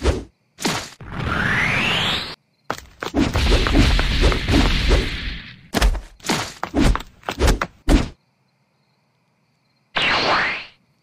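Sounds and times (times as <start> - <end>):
heavy cartoon footsteps thudding: 2.7 - 8.2.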